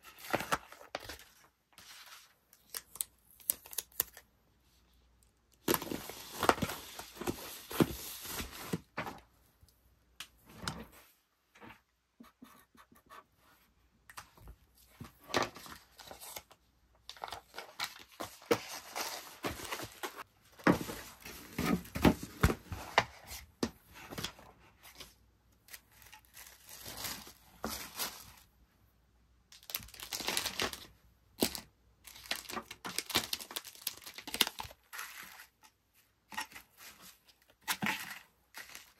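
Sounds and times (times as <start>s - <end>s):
tissue paper crinkling: 26.1s - 28.5s, 32.1s - 35.4s.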